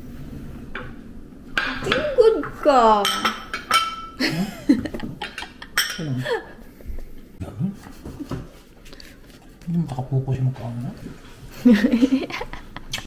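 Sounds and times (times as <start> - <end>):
dishes and cutlery clinking: 1.6 - 4.2, 5.0 - 6.3
person chuckling: 4.2 - 6.8, 11.6 - 13.0.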